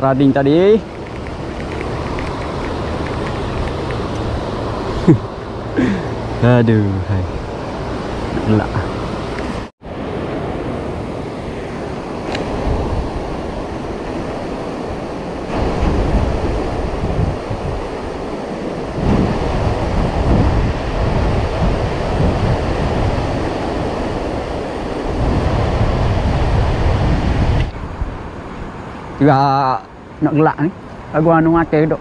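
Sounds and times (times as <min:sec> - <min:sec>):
wind buffeting microphone: 0:00.0 - 0:29.3.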